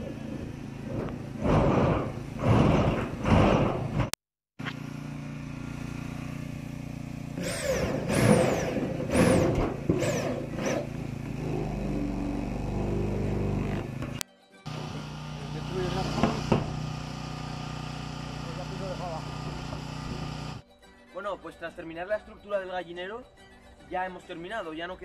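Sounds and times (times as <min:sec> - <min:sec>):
electric drill whining: 0:07.4 - 0:20.6.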